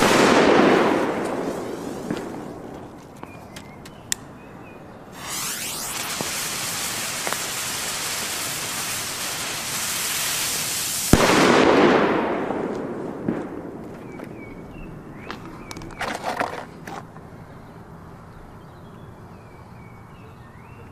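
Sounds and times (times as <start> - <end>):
firecracker bang: 0.0 - 3.0, 5.2 - 14.4
firecracker spraying sparks hiss: 1.0 - 2.6, 5.2 - 11.3.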